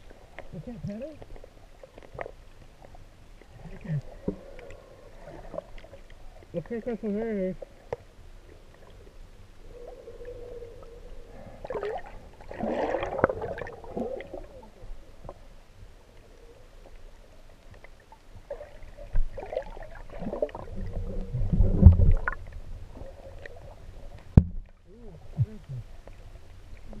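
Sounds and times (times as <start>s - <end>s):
faint steady hum: 0.0s - 27.0s
muffled underwater gurgling: 9.6s - 15.1s, 18.5s - 24.0s.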